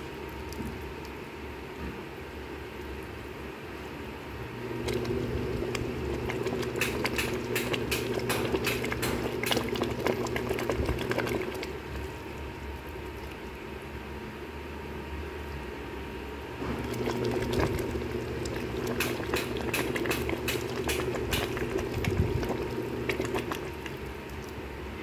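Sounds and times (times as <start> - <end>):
steady low hum: 0.0 - 25.0
soup simmering in a pot: 4.3 - 15.6, 16.5 - 25.0
ladle stirring broth: 4.7 - 13.8, 16.6 - 25.0.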